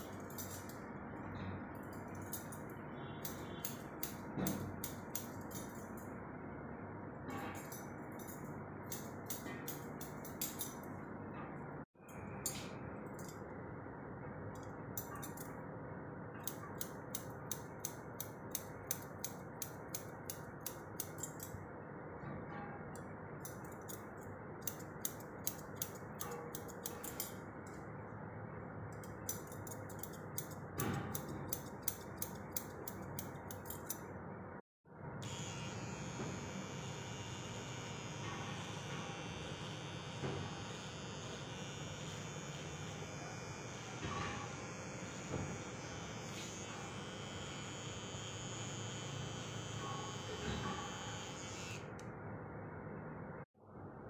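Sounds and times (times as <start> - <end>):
scissors snipping hair: 3.2 - 5.8, 16.4 - 21.5, 23.4 - 27.4, 29.0 - 34.0
electric hair trimmer buzzing: 35.2 - 51.9.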